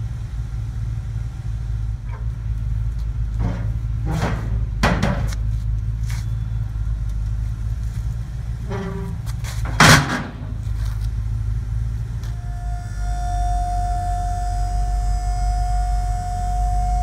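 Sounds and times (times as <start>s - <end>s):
truck engine idling: 0.0s - 17.0s
metal creak: 8.5s - 11.1s, 12.2s - 17.0s
liftgate platform clanging: 8.6s - 10.6s
hydraulic pump motor whine: 12.2s - 17.0s.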